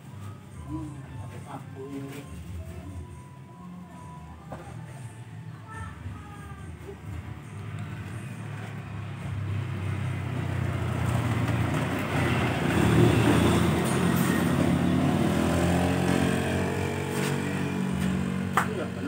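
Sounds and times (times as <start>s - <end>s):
motorbike engine passing by: 8.5s - 19.0s.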